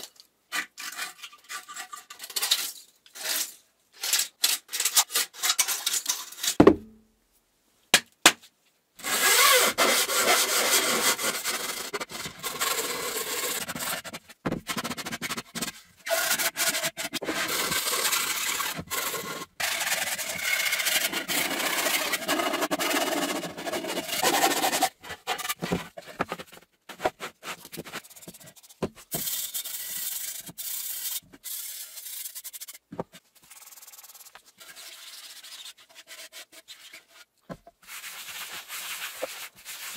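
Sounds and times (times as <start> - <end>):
sanding plastic by hand: 9.0 - 39.9.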